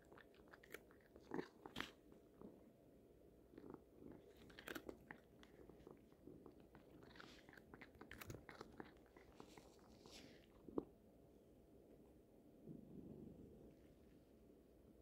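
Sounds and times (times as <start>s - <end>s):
cat chewing dry treats: 0.0s - 2.5s, 3.5s - 10.9s.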